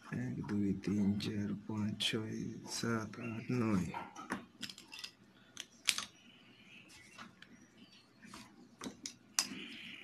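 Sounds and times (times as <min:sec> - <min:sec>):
plastic pens clicking and tapping: 0:04.3 - 0:06.2.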